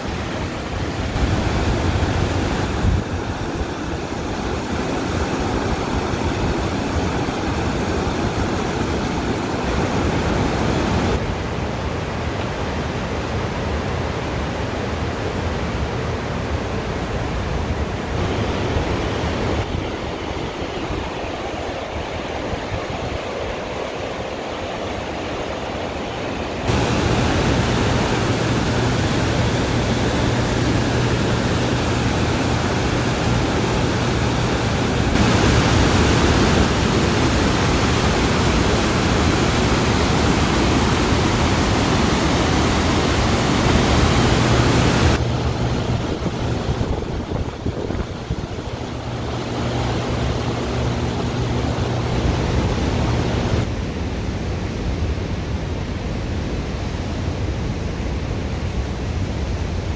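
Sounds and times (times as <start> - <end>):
water rushing over falls: 0.0 - 59.9.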